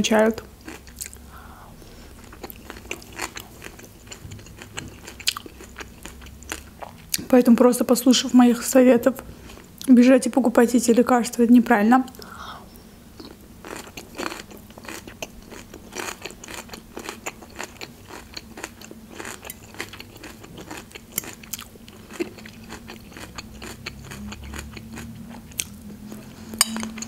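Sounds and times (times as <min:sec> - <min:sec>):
person chewing crunchy salad: 0:00.6 - 0:07.3, 0:13.2 - 0:27.0.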